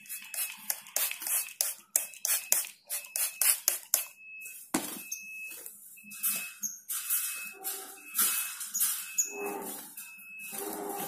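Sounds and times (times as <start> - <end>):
spray bottle squirting mist: 0.0 - 4.0.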